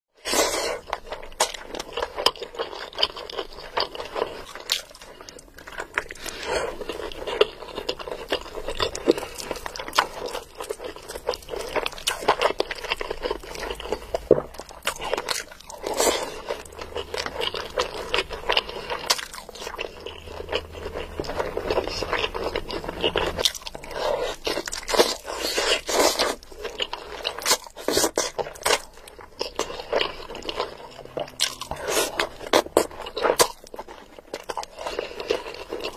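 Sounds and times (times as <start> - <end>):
wet chewing and smacking: 0.2 - 35.9.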